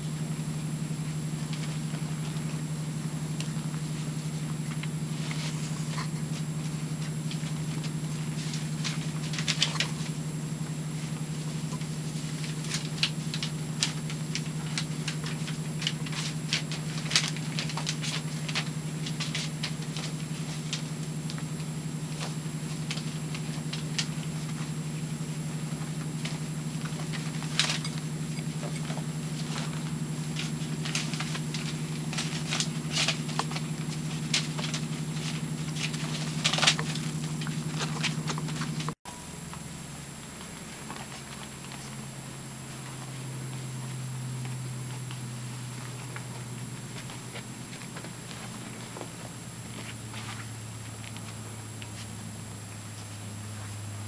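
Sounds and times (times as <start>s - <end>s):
steady low hum: 0.0s - 54.0s
puppy claws pattering and scratching: 3.4s - 39.0s, 42.7s - 52.1s.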